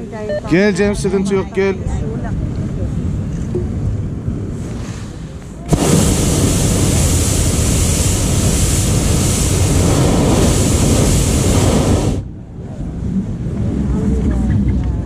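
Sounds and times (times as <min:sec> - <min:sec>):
propane burner roaring: 0:05.7 - 0:12.2.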